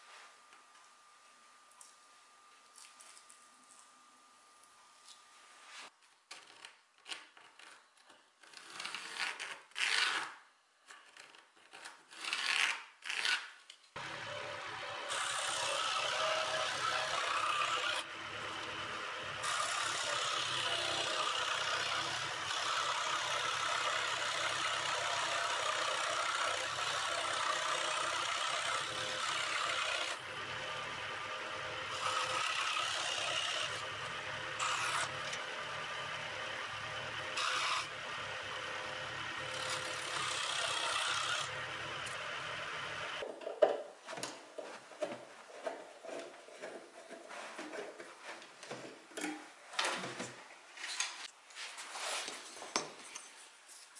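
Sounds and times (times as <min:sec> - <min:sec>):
scroll saw cutting wood: 0:12.2 - 0:43.2.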